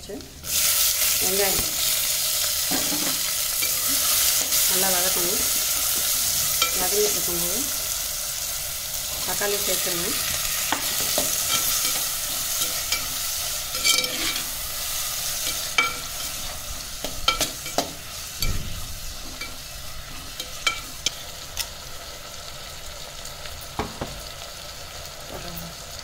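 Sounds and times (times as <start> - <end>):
onions sizzling in hot oil: 0.0 - 26.0
spatula clinking and scraping pot: 10.2 - 21.4.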